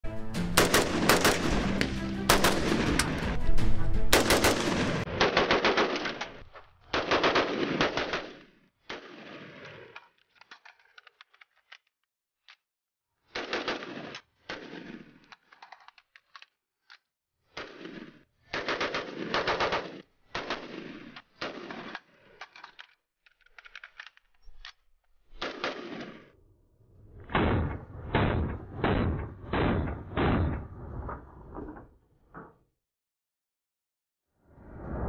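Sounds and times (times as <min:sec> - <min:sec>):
rapid gunshots: 0:00.5 - 0:03.4, 0:04.1 - 0:09.7, 0:13.4 - 0:15.1, 0:17.6 - 0:22.0, 0:25.4 - 0:26.3, 0:27.3 - 0:30.7.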